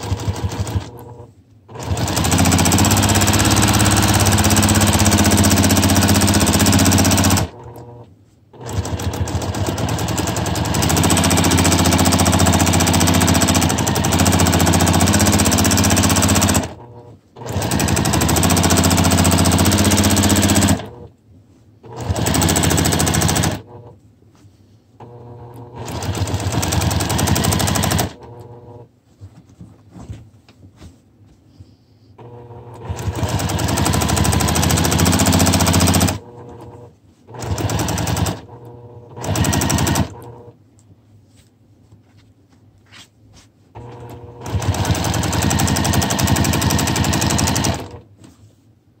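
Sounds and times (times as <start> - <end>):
sewing machine needle chattering: 1.8 - 7.7, 8.6 - 16.8, 17.4 - 20.9, 22.0 - 23.7, 25.6 - 28.6, 32.8 - 36.6, 37.4 - 38.6, 39.2 - 40.4, 44.1 - 48.0.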